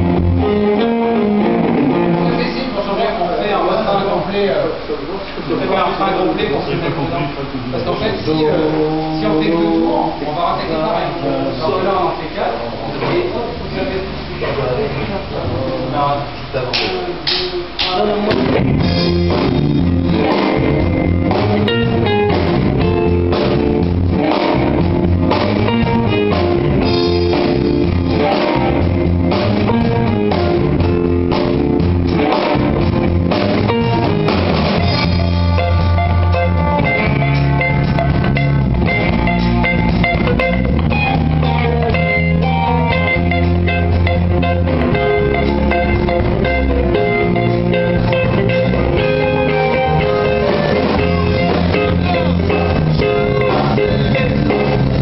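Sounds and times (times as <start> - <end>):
drum kit playing: 0.0 - 3.2, 16.7 - 55.0
electric guitars: 0.0 - 5.5, 7.4 - 55.0.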